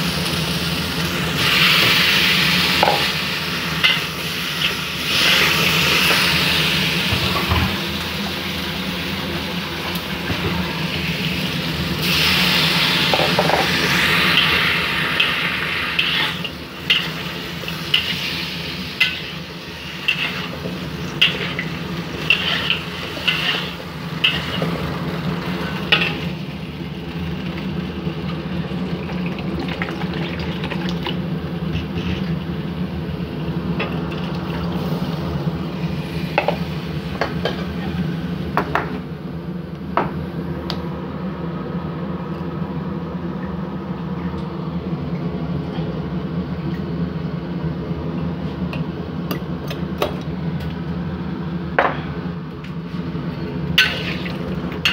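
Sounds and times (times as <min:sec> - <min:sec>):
oil sizzling in a wok: 0:00.0 - 0:38.6, 0:53.0 - 0:54.9
metal spatula scraping a wok: 0:21.2 - 0:24.6.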